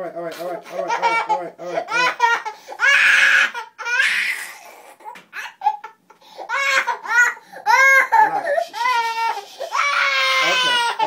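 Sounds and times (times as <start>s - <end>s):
toddler crying: 0.8s - 11.0s
toddler sobbing: 0.8s - 11.0s
toddler screaming: 1.9s - 4.7s, 8.8s - 11.0s.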